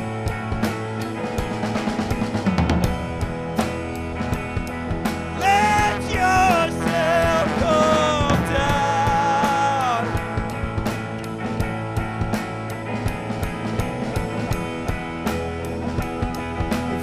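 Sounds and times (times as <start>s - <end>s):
rock band playing live: 0.0s - 17.0s
trombone melody: 5.3s - 10.8s.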